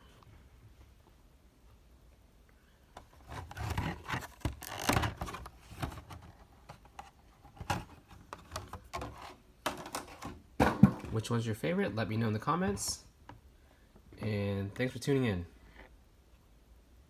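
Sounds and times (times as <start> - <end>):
rustling and scraping of packaging: 3.0 - 11.0.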